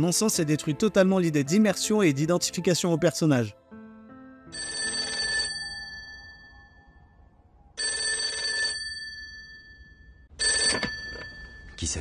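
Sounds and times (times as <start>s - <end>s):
old telephone bell ringing: 4.6s - 6.8s, 7.8s - 11.8s.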